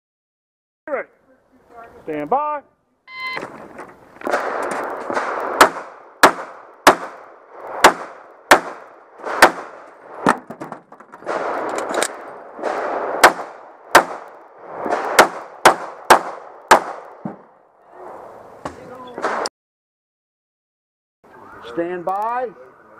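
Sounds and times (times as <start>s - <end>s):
pistol shots with echo: 4.3s - 9.8s, 12.6s - 14.3s, 14.9s - 17.2s.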